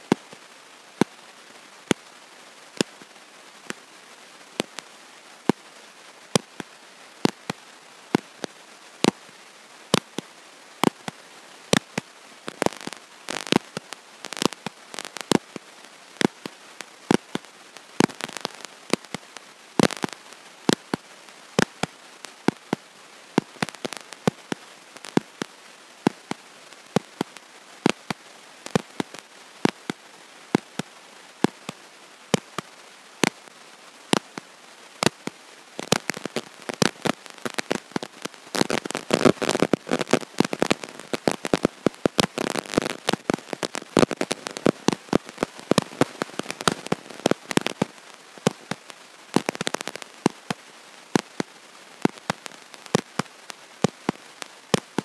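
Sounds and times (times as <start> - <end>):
steady hiss: 0.0 - 55.0
sharp clicks and crackling: 35.8 - 50.6.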